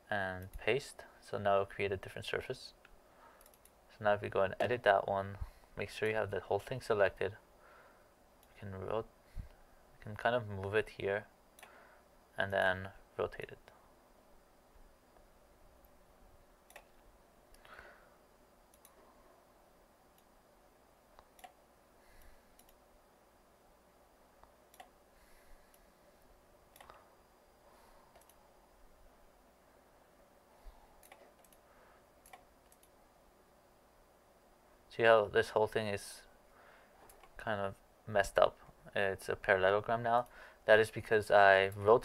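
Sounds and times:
faint mouse clicks: 2.8s - 3.8s, 18.7s - 19.0s, 21.1s - 21.6s, 22.2s - 22.8s, 24.4s - 25.0s, 28.1s - 28.4s, 31.0s - 31.6s, 32.2s - 33.0s.

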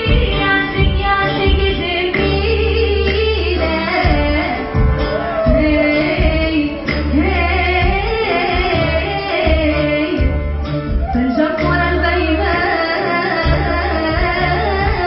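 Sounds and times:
women singing: 0.0s - 10.4s, 11.0s - 15.0s
heavy low beat: 4.0s - 11.9s.

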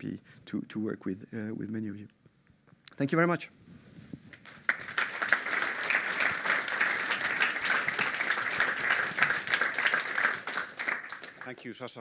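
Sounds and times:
audience applauding: 4.4s - 11.8s.

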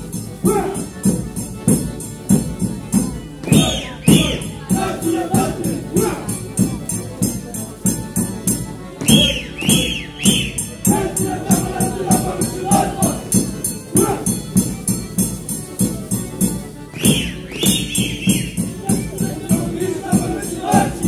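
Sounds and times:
rhythmic jingling: 0.0s - 21.0s
traditional dance music: 0.0s - 21.0s.

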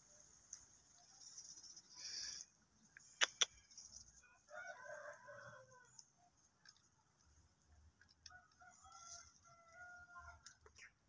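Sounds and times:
rooster crowing: 4.4s - 6.0s, 8.3s - 10.4s.

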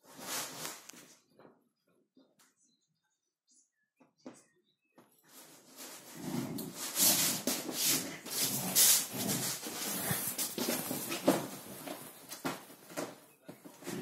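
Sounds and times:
rustling fabric: 0.0s - 1.2s, 5.3s - 14.0s
scuffling on wooden floor: 5.3s - 14.0s.

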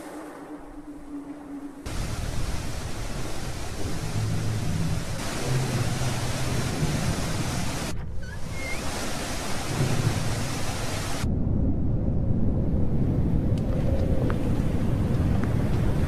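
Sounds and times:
steady low rumble: 0.0s - 8.2s, 9.2s - 16.0s
rushing hiss: 1.9s - 11.2s.

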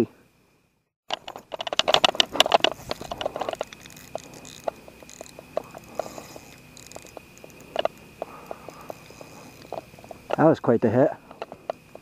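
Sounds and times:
fishing reel drag clicking: 1.1s - 12.0s.

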